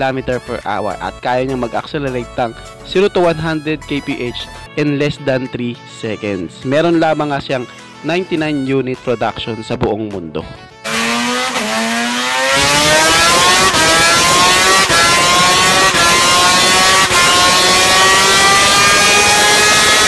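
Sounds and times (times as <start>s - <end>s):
race engine running flat out: 10.9s - 20.0s.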